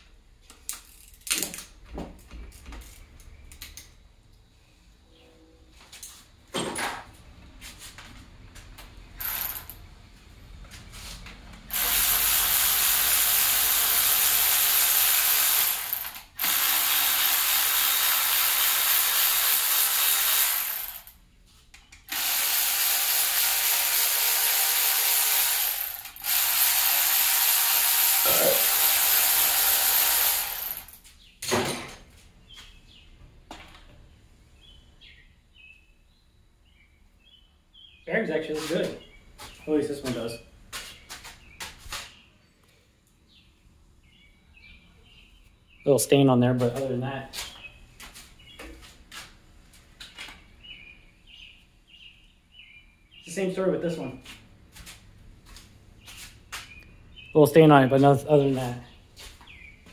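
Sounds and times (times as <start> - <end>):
power ratchet spinning out bolts: 9.2 - 9.8, 11.7 - 21.2, 22.1 - 31.0.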